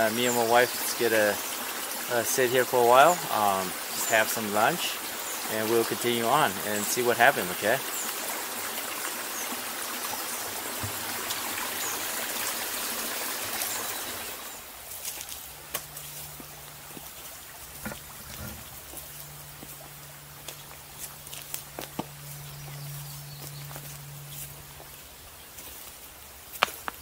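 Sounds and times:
stream trickling: 0.0 - 27.0
footsteps through grass and leaves: 14.5 - 27.0.

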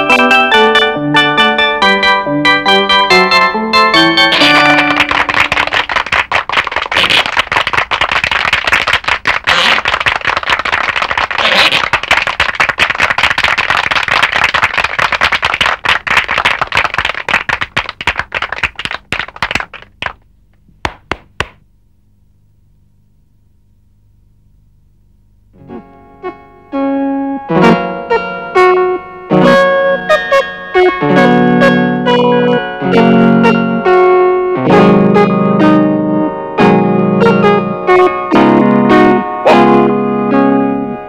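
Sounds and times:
cartoon clicks and knocks: 4.2 - 10.7
faint low hum: 4.5 - 26.7.

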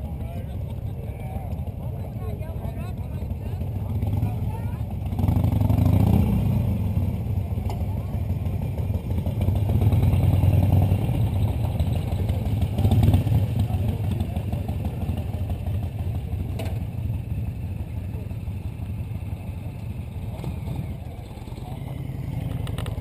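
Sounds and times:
motorcycle engines running: 0.0 - 23.0.

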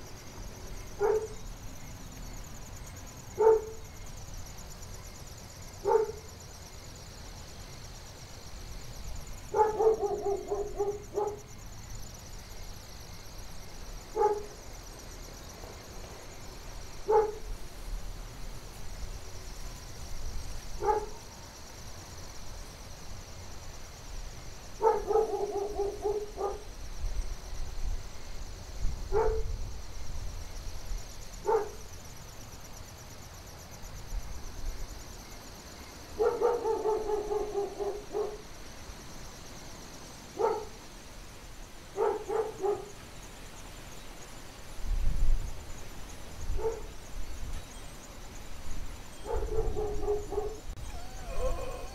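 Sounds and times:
steady high hiss: 0.0 - 36.5, 37.3 - 49.4
dog barking: 1.0 - 1.4, 3.4 - 3.8, 5.8 - 6.3, 9.5 - 11.4, 14.2 - 14.5, 17.1 - 17.4, 20.8 - 21.2, 24.8 - 26.7, 29.1 - 29.5, 31.4 - 31.8, 36.2 - 38.4, 40.4 - 40.7, 42.0 - 42.9, 46.6 - 46.9, 49.2 - 51.9.

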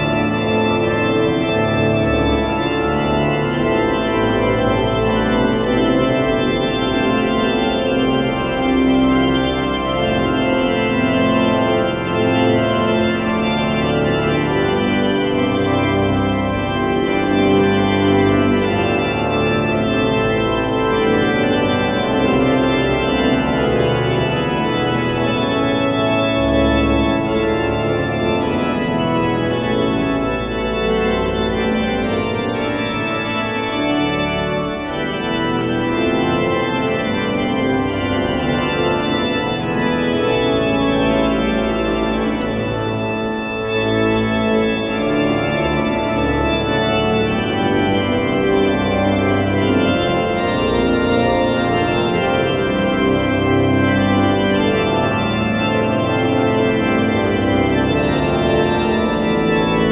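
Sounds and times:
pipe organ playing: 0.0 - 59.9.

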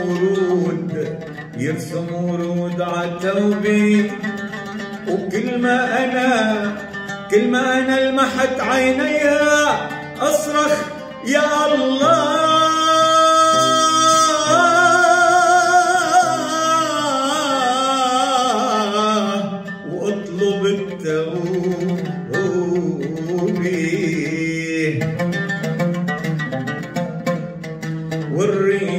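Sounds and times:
man singing: 0.0 - 25.8, 28.1 - 28.9
oud playing: 0.0 - 28.9.

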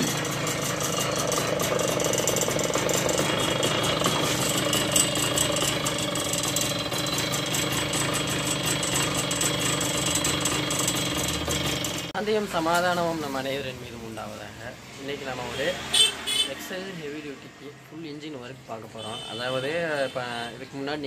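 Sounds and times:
moped engine rattling knock: 0.0 - 12.2.

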